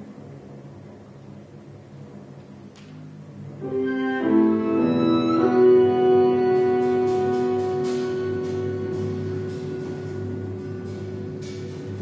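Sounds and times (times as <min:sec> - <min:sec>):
chamber ensemble playing held notes: 0:03.5 - 0:12.0.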